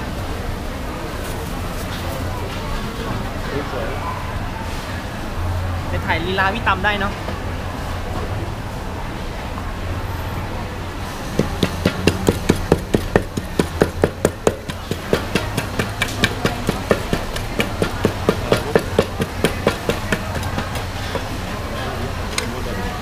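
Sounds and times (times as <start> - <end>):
wooden pestle pounding in mortar: 11.3 - 21.5.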